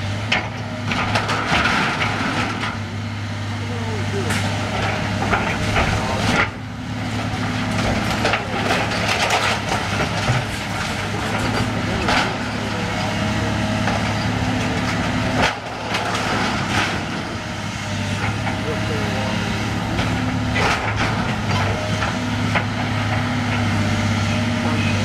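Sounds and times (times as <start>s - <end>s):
excavator diesel engine running: 0.0s - 25.0s
wood cracking and splintering: 4.2s - 19.0s.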